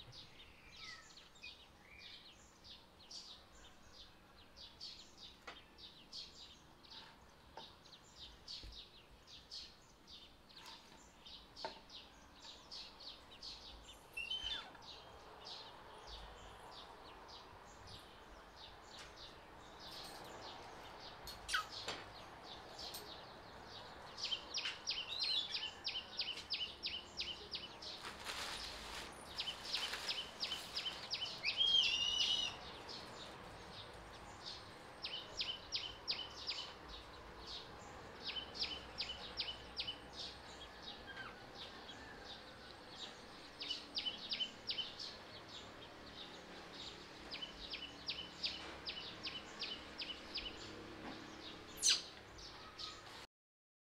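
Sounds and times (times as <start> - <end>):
bird chirping: 0.0 - 53.2
wavering bird call: 31.4 - 32.6.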